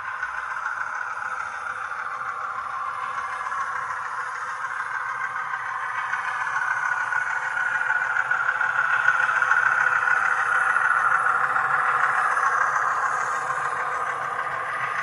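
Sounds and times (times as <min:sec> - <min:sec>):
model train rolling on track: 0:00.0 - 0:15.0.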